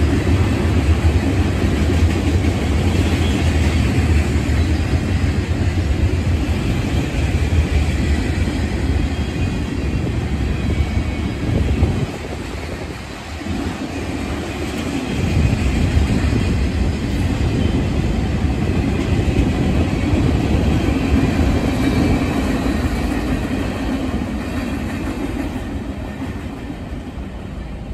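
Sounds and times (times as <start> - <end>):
train wheels rumbling on rails: 0.0 - 27.9.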